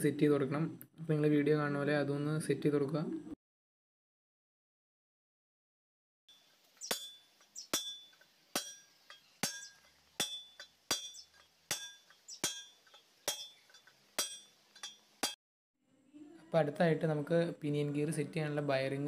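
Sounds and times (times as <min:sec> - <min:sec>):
hammer striking steel drift: 0:06.8 - 0:15.4.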